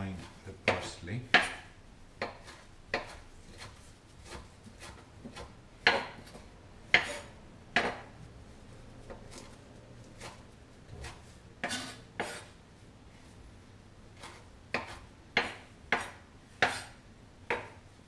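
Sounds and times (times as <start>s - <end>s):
knife chopping on wooden board: 0.2s - 8.2s, 10.2s - 12.5s, 14.2s - 17.8s.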